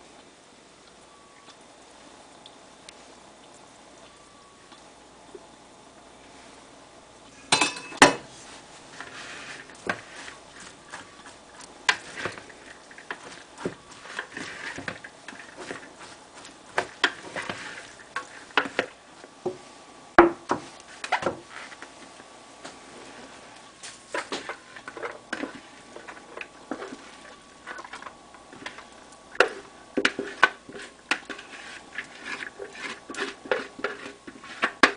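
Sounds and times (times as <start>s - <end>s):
rice rustling: 8.2s - 34.9s.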